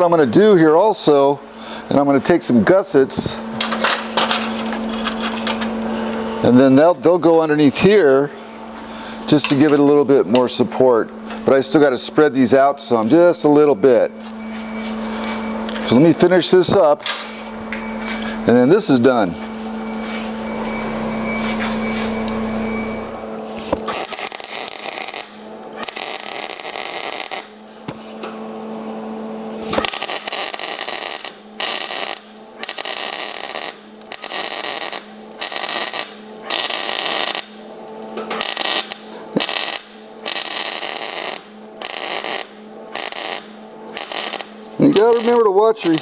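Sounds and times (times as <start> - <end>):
welding arc crackling: 0.0 - 14.1, 23.0 - 27.9, 29.5 - 46.0.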